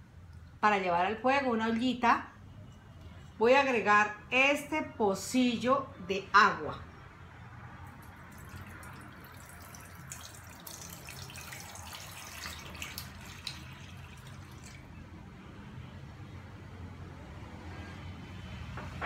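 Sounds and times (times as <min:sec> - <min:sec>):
water pouring into a pot: 0:07.9 - 0:15.0.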